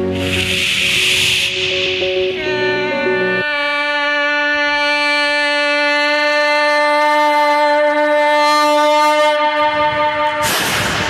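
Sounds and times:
man imitating a train horn: 2.3s - 10.7s.

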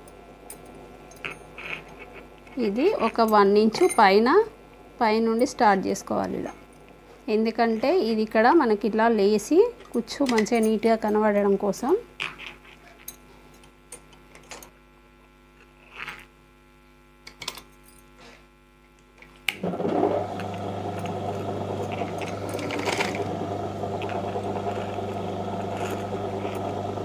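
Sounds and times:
sewing machine running: 19.6s - 27.0s.

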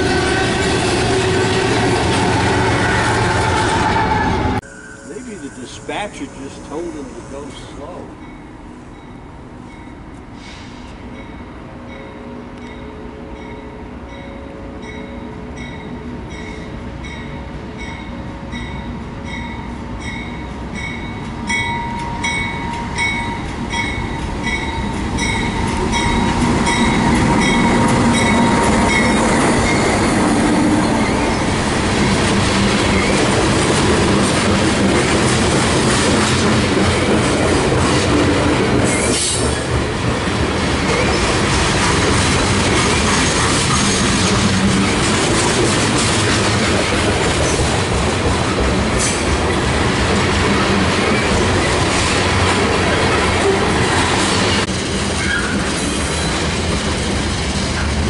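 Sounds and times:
freight train rumble: 0.0s - 58.0s
train bell ringing: 4.6s - 10.1s, 11.1s - 30.2s
train wheels clattering and squealing: 20.0s - 39.9s, 40.6s - 58.0s.

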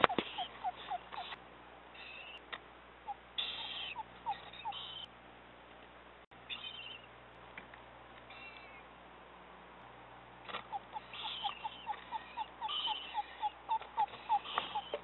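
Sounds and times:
higher chirps: 0.0s - 1.4s, 3.1s - 5.1s, 10.7s - 15.0s
owl calling short notes: 0.0s - 1.4s, 3.4s - 5.1s, 10.7s - 15.0s.

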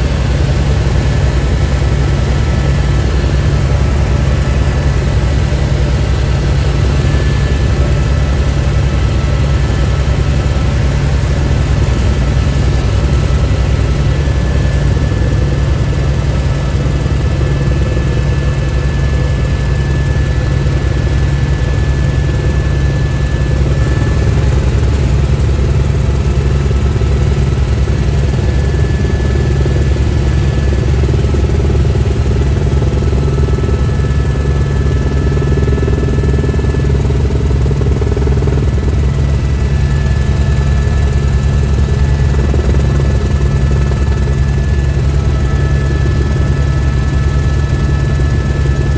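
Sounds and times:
helicopter rotor and engine drone: 0.0s - 48.9s.

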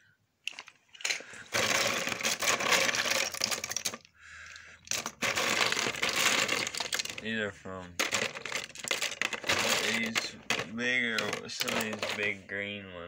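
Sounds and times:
plastic toys clattering in bin: 0.4s - 7.4s, 8.0s - 12.4s.

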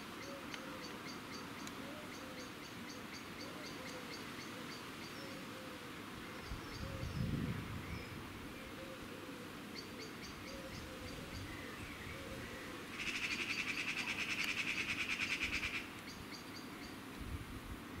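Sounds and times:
bird trilling: 12.2s - 15.9s.

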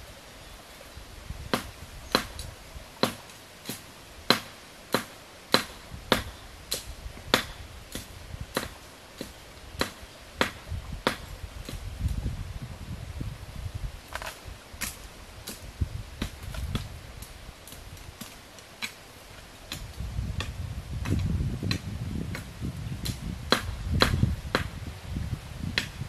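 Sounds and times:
machete chopping bamboo: 1.5s - 11.8s, 17.7s - 19.0s, 19.7s - 24.7s.

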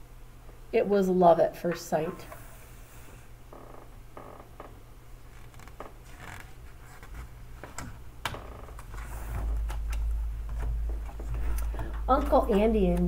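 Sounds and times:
book pages turning: 5.4s - 8.0s.

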